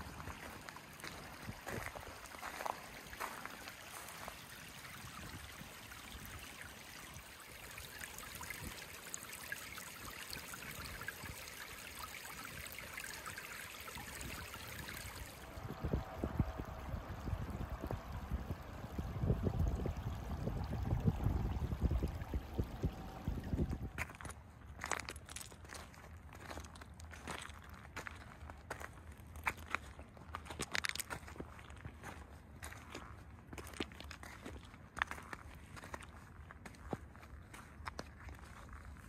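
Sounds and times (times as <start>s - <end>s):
water lapping on pebble shore: 0.0s - 33.0s
low rumble: 15.4s - 24.0s.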